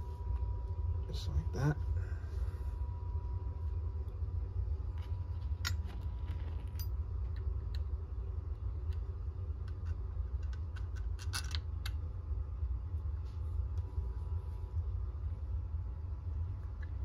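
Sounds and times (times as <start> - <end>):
low hum: 0.0 - 17.0
metal parts clicking and clinking: 5.6 - 7.0, 10.4 - 11.6.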